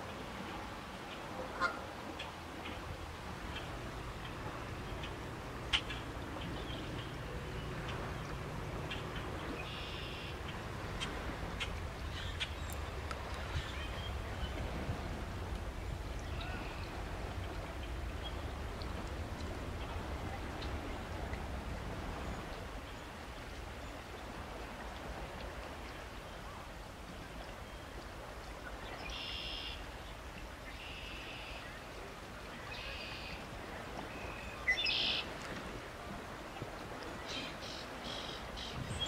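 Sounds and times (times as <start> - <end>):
songbird calling: 4.9 - 14.7, 16.1 - 19.1, 29.0 - 29.8, 32.6 - 33.4, 34.1 - 35.3, 37.2 - 39.0.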